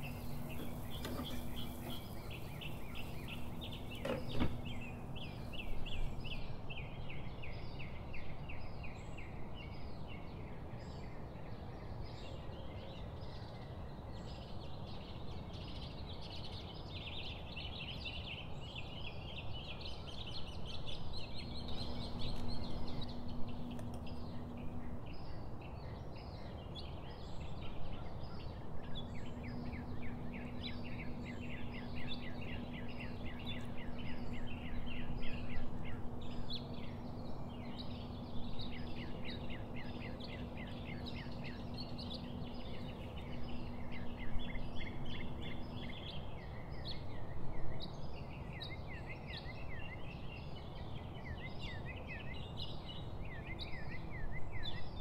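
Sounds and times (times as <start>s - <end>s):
background hiss: 0.0s - 6.4s
low steady hum: 0.0s - 8.8s, 19.8s - 55.0s
small birds chirping: 0.0s - 55.0s.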